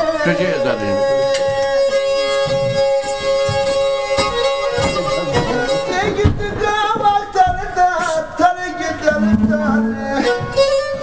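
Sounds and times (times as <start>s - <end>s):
bowed fiddle folk melody: 0.0s - 11.0s
steady held drone note: 9.0s - 10.2s.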